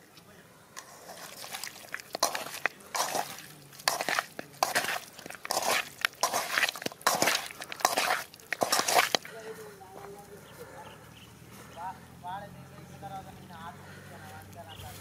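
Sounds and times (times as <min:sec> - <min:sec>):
food squishing and scraping in pan: 0:00.8 - 0:09.4.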